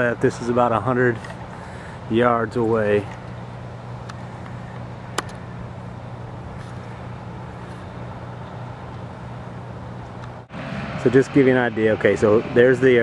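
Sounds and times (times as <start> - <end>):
low even hum: 0.0 - 10.5
sharp click: 5.1 - 5.4.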